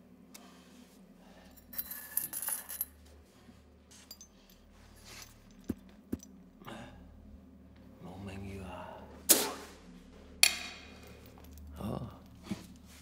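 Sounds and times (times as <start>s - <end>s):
low steady hum: 0.0s - 13.0s
metallic clinking and rattling: 1.4s - 3.0s.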